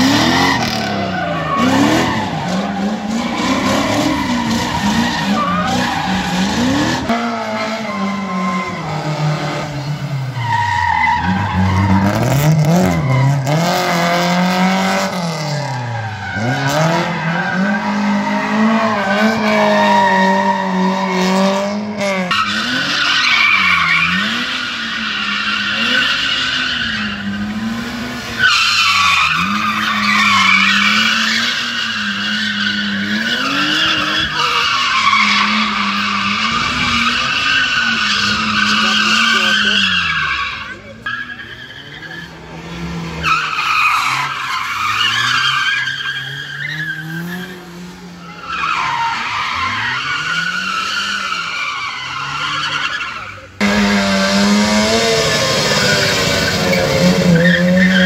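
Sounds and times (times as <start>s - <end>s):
car engine revving: 0.0s - 58.0s
tyres squealing: 28.4s - 42.4s.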